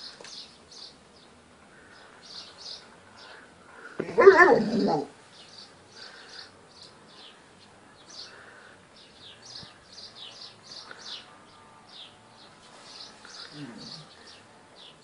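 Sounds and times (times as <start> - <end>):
small birds chirping: 0.0 - 15.0
loud wavering cry: 4.0 - 5.1.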